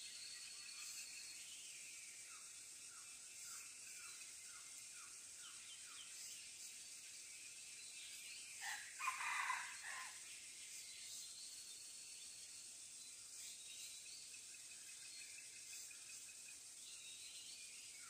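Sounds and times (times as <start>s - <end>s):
rooster crowing: 8.6s - 10.2s.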